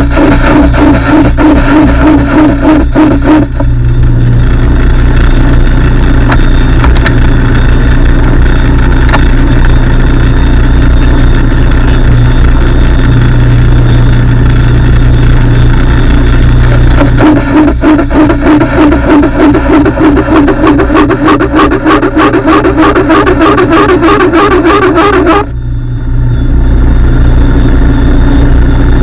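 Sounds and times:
metal lathe motor humming: 11.7 - 27.9.

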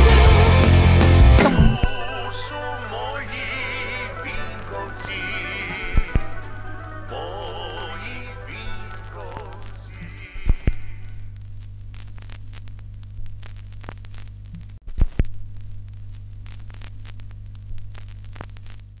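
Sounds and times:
loud thumps: 1.2 - 2.0
crackles and clicks: 1.4 - 19.0
low electrical hum: 1.5 - 19.0.

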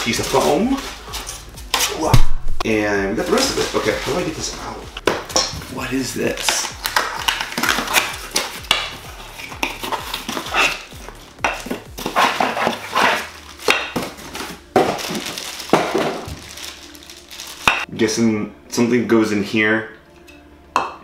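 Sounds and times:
plastic wrapping crinkling: 3.2 - 4.8, 11.6 - 17.9
cardboard scraping: 9.1 - 10.9, 11.5 - 15.3.

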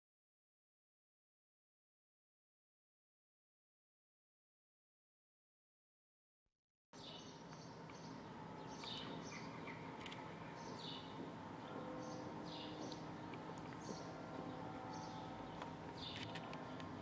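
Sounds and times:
birds chirping: 7.0 - 17.0
low hum of street ambience: 7.0 - 17.0.

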